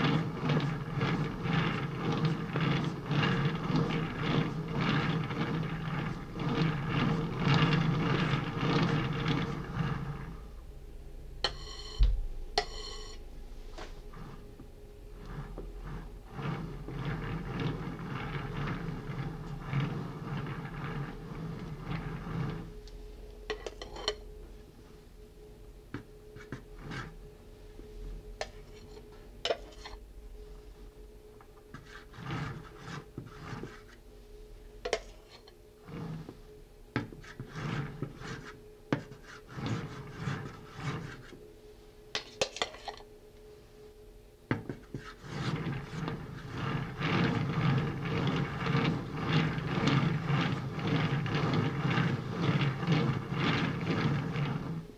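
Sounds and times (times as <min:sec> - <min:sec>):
spatula scraping cream on cake: 0:00.0 - 0:10.4, 0:12.6 - 0:13.2, 0:13.8 - 0:14.5, 0:15.1 - 0:24.3, 0:26.3 - 0:27.2, 0:28.4 - 0:30.0, 0:31.7 - 0:34.0, 0:34.9 - 0:36.4, 0:37.0 - 0:41.4, 0:42.2 - 0:43.1, 0:44.5 - 0:54.9.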